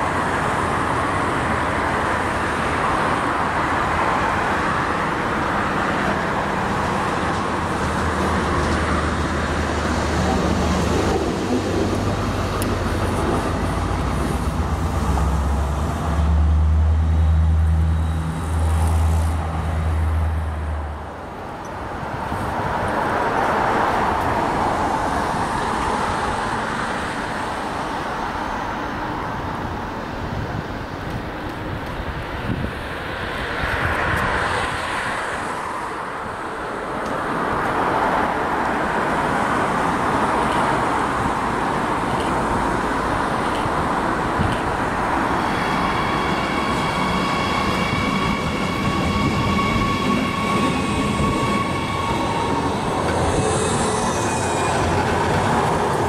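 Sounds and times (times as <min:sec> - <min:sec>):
traffic and yard noise: 0:00.0 - 0:56.0
locomotive engine humming: 0:39.0 - 0:56.0.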